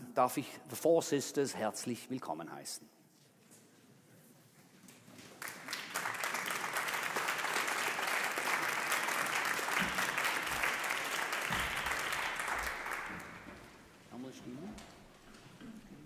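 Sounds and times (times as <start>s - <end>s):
audience applauding: 5.2s - 13.9s.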